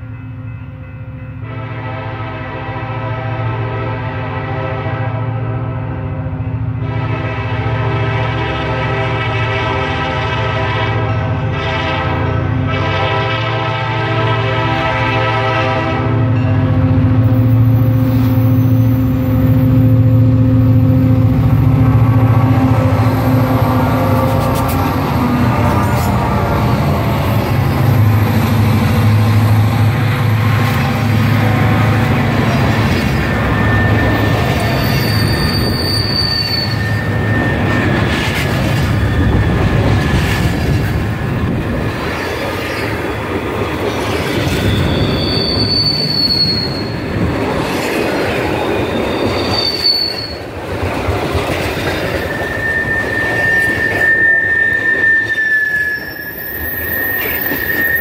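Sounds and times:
diesel locomotive engine drone: 0.0 - 58.0
train wheels rumbling on rail: 1.4 - 58.0
wheel squeals: 32.6 - 39.9, 44.4 - 47.0, 48.5 - 50.4, 52.0 - 58.0.

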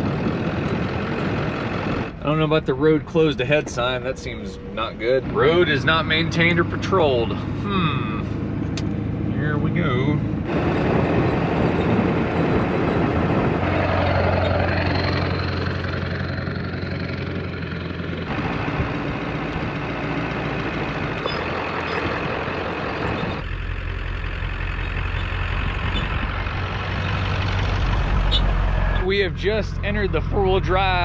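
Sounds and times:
truck engine hum: 0.0 - 31.0
tyres on rough dirt road: 0.0 - 31.0.

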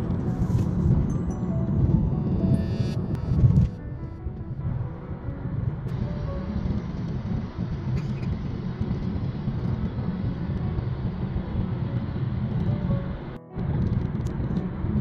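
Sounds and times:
car road noise from inside cabin: 5.1 - 15.0.

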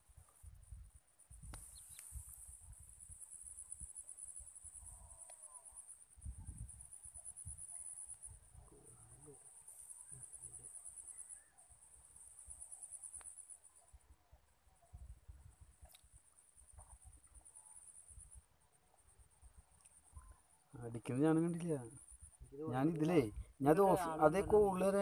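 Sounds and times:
insects trilling: 0.2 - 25.0
faint clicks: 5.2 - 5.6, 13.1 - 13.4, 15.8 - 17.4.

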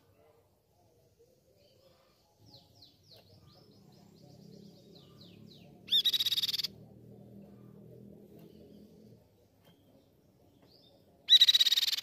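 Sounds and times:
bird rapid chatter: 4.9 - 6.8, 11.3 - 12.0.

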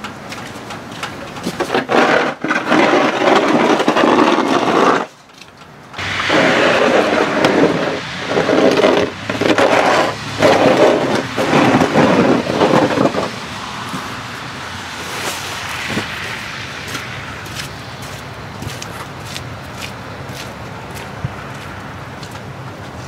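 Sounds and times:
snow shovel scraping pavement: 1.4 - 5.2, 6.0 - 18.2.

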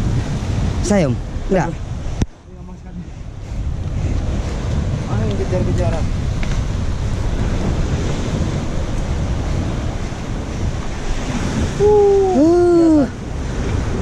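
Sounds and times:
surf washing against rocks: 0.0 - 14.0
wind on microphone: 0.0 - 14.0
person calling out loudly: 11.8 - 13.1.

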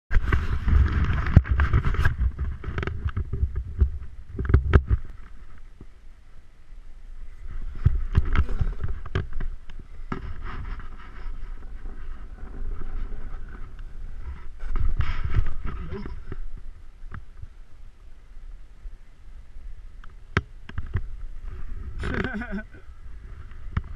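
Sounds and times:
snowboard scraping over snow: 0.1 - 5.5, 7.3 - 16.7
wind rumbling on microphone: 0.1 - 23.9.

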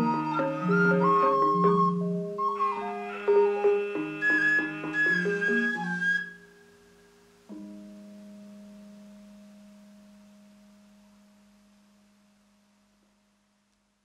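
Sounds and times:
high flute tone: 0.0 - 7.0
gamelan ensemble: 0.0 - 11.0.

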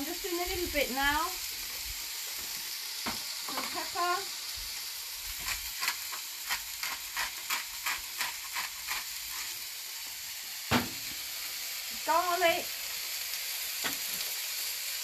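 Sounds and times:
food sizzling on a griddle: 0.0 - 15.0
sharp knock: 10.7 - 11.0.

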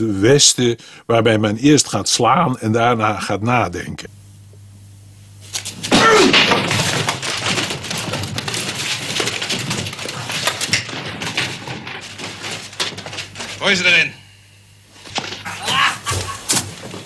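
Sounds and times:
men scuffling and shouting: 5.5 - 14.2, 14.9 - 17.0
clatter of knocks and thumps: 5.8 - 13.6, 16.1 - 17.0.

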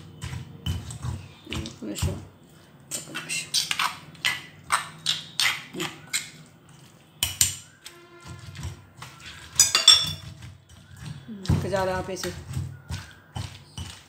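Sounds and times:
stone pestle pounding in mortar: 8.3 - 14.0.

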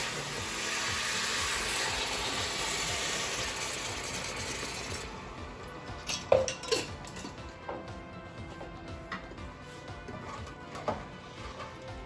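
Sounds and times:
container clinking and knocking: 6.0 - 7.4.

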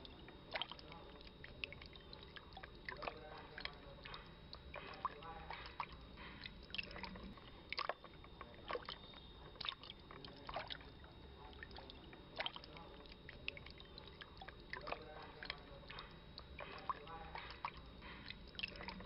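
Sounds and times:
water dripping and sloshing: 0.0 - 19.0.

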